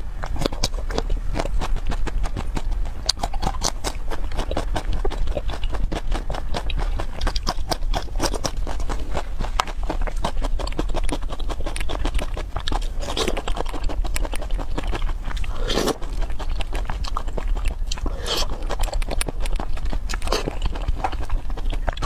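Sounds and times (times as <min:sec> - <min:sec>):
low hum: 0:00.0 - 0:22.0
person chewing wetly: 0:00.0 - 0:22.0.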